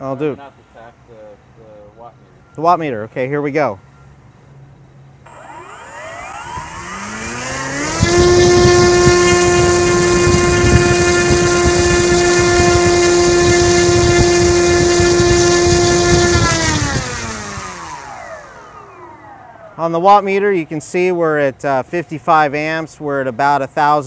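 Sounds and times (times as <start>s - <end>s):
electric motor propeller whine: 5.3s - 20.4s.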